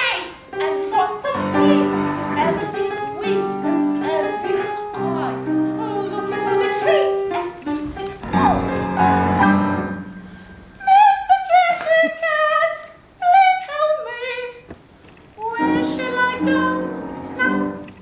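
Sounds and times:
woman singing operatically: 0.0 - 7.8, 10.8 - 14.7, 15.4 - 17.9.

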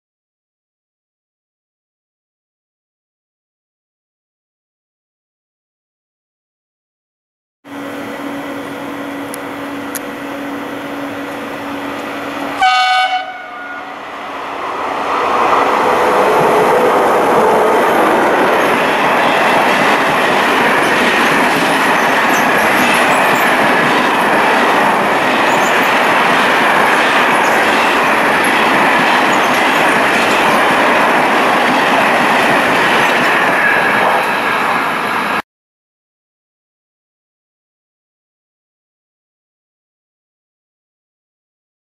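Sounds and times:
electric locomotive hum: 7.7 - 35.4
train wheels rumbling on rails: 7.7 - 35.4
locomotive horn blast: 12.4 - 14.0.

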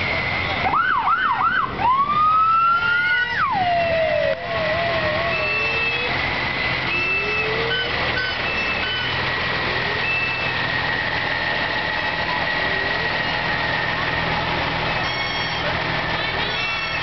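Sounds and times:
faint rising siren wails: 0.0 - 16.2
fire truck engine idling: 0.0 - 17.0
steady high tone: 2.8 - 17.0.

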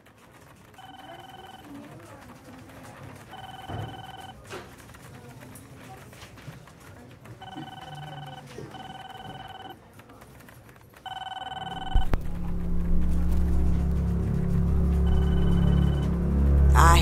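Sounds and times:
electronic telephone ringer trilling: 0.8 - 1.7, 3.3 - 4.3, 7.4 - 9.8, 11.1 - 12.2, 15.0 - 16.1.

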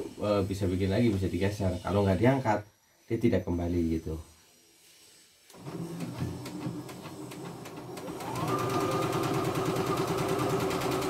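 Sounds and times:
sewing machine stitching: 5.5 - 11.0.

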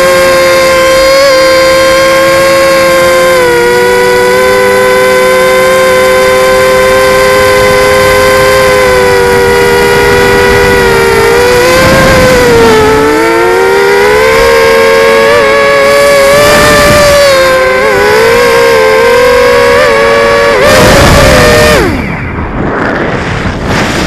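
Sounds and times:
drone motors whining: 0.0 - 24.0
wind on microphone: 0.0 - 24.0.

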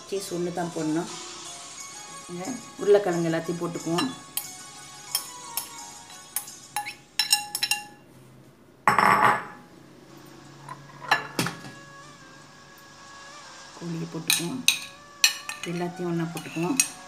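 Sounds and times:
glass bowls clinking: 3.7 - 8.0, 8.9 - 9.6, 10.7 - 11.7, 14.3 - 17.0.

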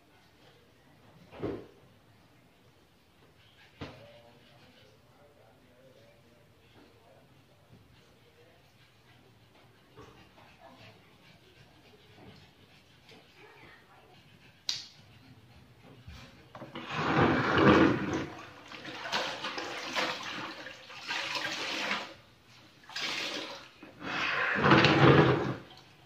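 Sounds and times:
water sloshing in a bucket: 16.8 - 22.2, 22.8 - 25.9.

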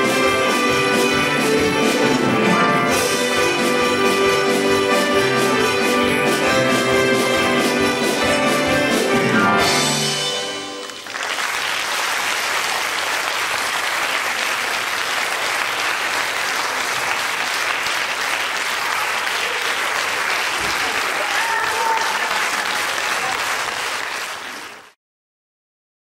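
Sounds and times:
audience applauding: 10.2 - 25.0.

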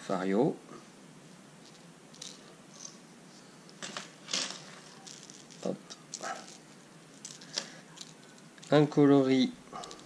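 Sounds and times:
plastic lures clicking and rattling: 5.0 - 8.8, 9.8 - 10.0.

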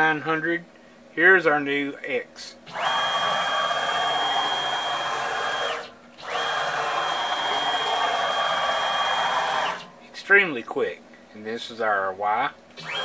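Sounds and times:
stepper motor whine: 2.7 - 9.9, 12.8 - 13.0.

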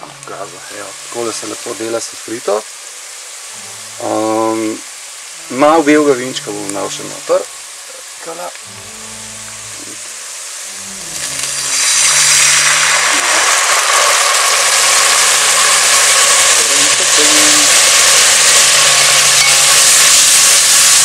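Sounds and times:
vegetables sizzling in hot oil: 0.0 - 21.0.

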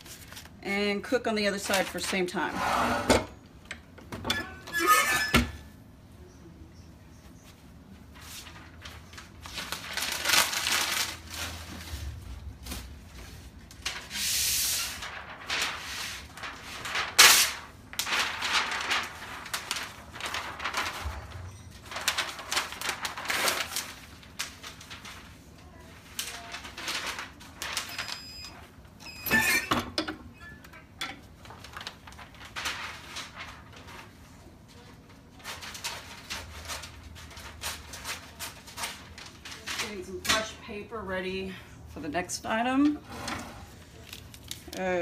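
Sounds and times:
paper rustling: 0.0 - 0.6, 7.5 - 28.7, 31.2 - 40.5, 43.2 - 45.0.

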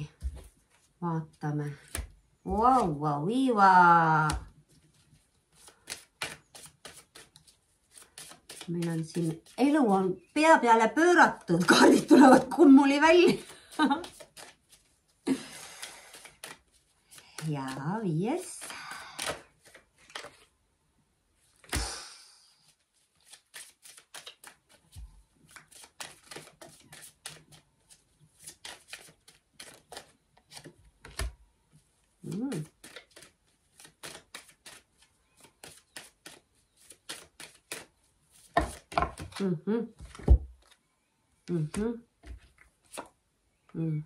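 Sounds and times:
cards being shuffled: 1.8 - 3.0, 4.2 - 9.8, 11.4 - 20.5, 21.4 - 21.9, 22.6 - 31.4, 32.2 - 40.8, 41.7 - 43.2
person humming: 39.4 - 40.0, 41.5 - 42.1.

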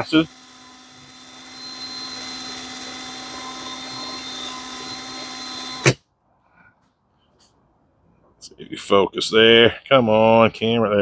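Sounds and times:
cordless drill whining: 0.0 - 6.0.

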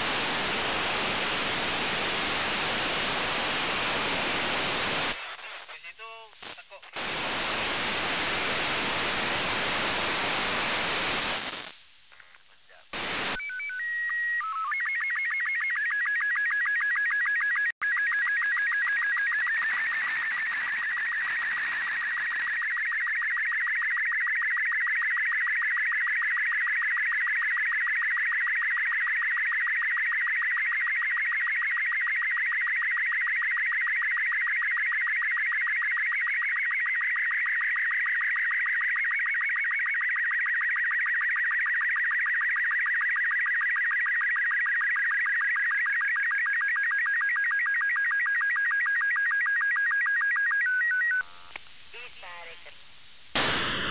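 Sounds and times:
static hiss: 0.0 - 13.4, 51.3 - 53.9
warbling radio signal tones: 0.0 - 53.9.

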